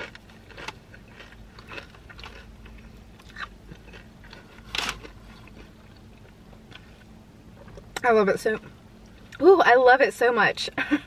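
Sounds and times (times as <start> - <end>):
chewing tortilla chips: 0.0 - 7.1.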